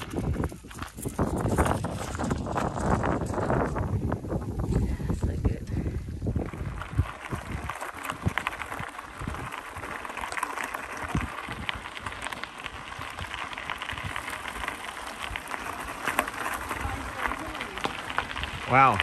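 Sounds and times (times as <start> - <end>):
bicycle tyres crunching on gravel: 0.0 - 19.0.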